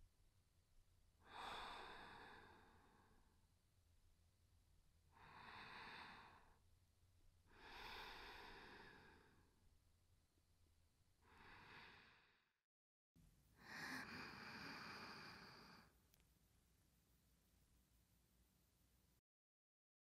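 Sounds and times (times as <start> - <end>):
woman breathing softly: 1.2 - 3.4, 5.1 - 6.7, 7.4 - 9.6, 11.2 - 12.6, 13.6 - 16.0.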